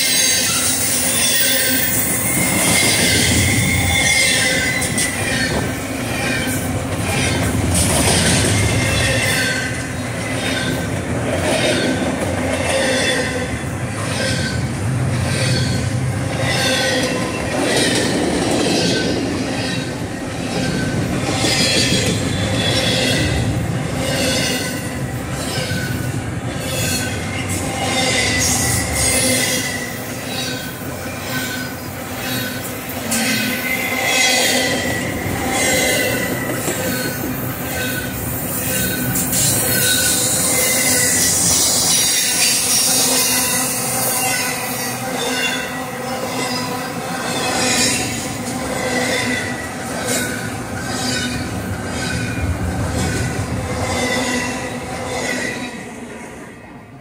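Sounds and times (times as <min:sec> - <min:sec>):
thin wheel squeal: 0:00.0 - 0:05.6
freight train wheels rumbling: 0:00.0 - 0:57.0.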